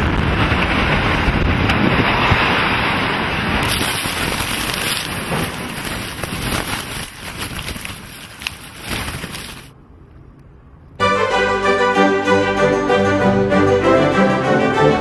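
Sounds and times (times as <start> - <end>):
dense rushing dust cloud: 0.0 - 9.7.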